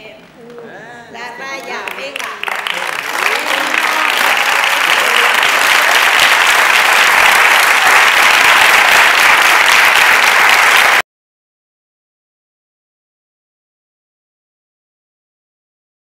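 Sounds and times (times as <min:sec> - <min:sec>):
audience applauding: 0:01.4 - 0:11.0.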